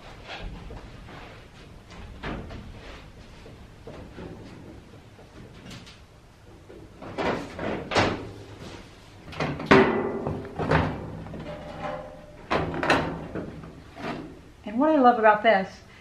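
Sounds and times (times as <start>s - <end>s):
knocks and clunks on sheet metal: 9.3s - 14.3s.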